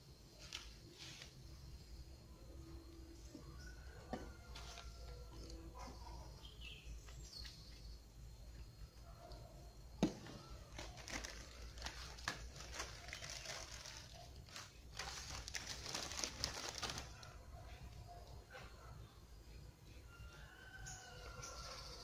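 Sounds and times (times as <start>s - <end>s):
wrappers crinkling and rustling: 10.2s - 17.5s.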